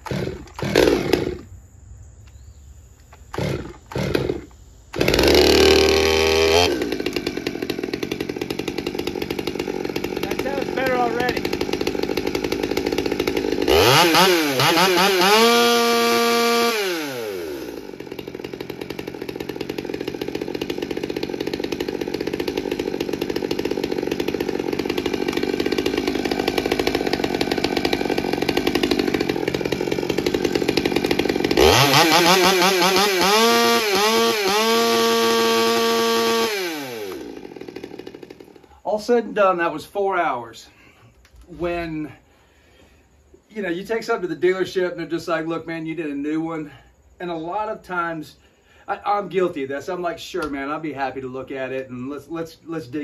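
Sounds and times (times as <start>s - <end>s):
chainsaw idling and revving: 0.0s - 1.5s, 3.3s - 39.3s, 41.6s - 43.4s.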